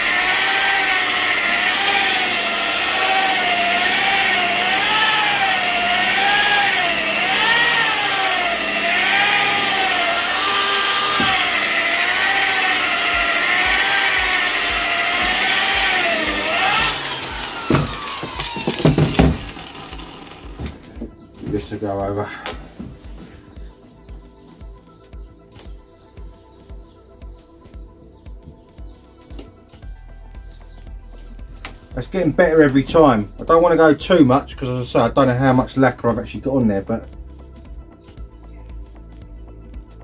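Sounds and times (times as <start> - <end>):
electric polisher motor: 0.0 - 21.2
tool knocks and clatter: 17.6 - 19.6.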